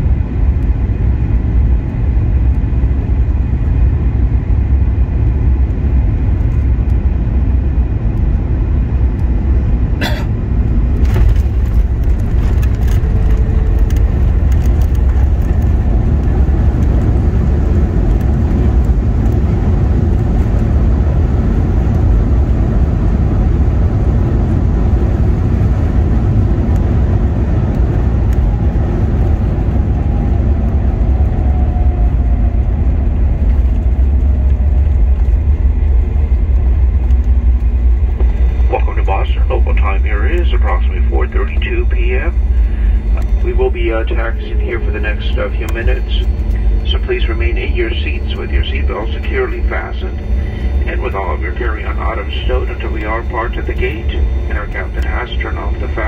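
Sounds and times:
low rumble of engines and airflow: 0.0 - 56.0
faint falling whine: 27.7 - 56.0.

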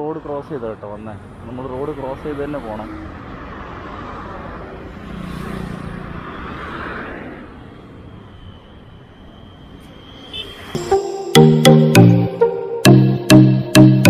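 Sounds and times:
highway traffic passing: 0.0 - 13.7
vehicle passing by: 2.1 - 8.1.

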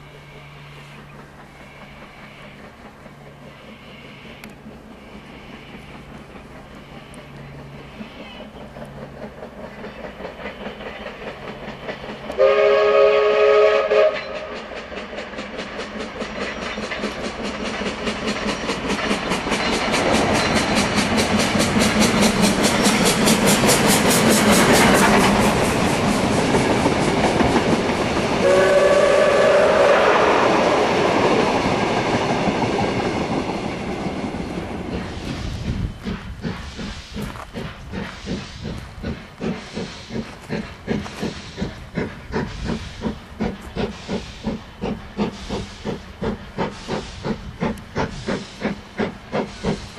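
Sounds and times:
steam locomotive running past: 0.0 - 49.9
steam whistle chord: 12.4 - 14.5, 28.4 - 30.6.

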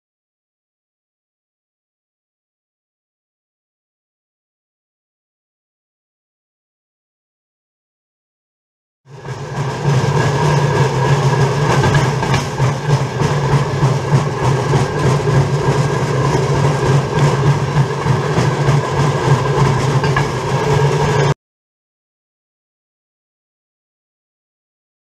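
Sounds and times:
steel wheels running on rails: 9.1 - 21.4.

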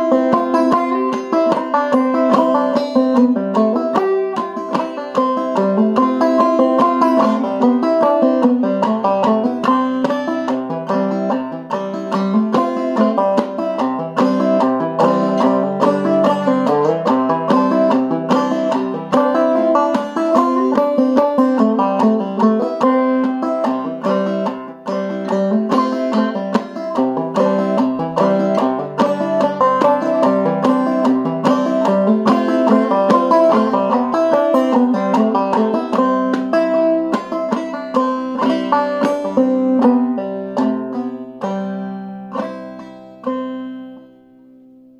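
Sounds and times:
banjo clawhammer picking: 0.0 - 44.9.

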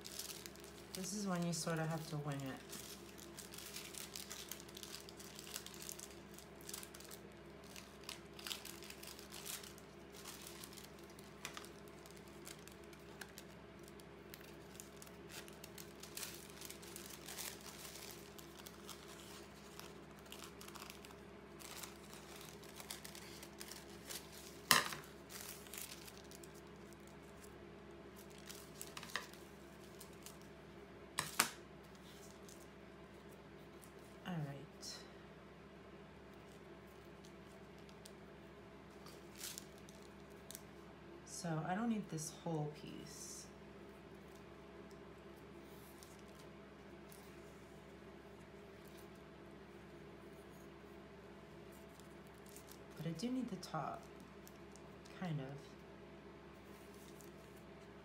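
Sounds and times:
paper rustling and crinkling: 0.0 - 27.6, 28.2 - 30.5, 31.2 - 34.2, 38.9 - 40.6, 45.5 - 48.0, 51.6 - 53.1, 56.6 - 57.8.

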